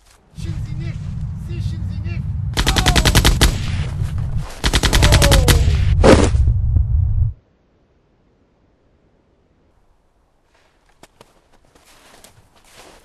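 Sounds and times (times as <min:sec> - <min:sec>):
low rumble: 0:00.3 - 0:07.4
automatic gunfire bursts: 0:02.6 - 0:03.6, 0:04.6 - 0:05.7.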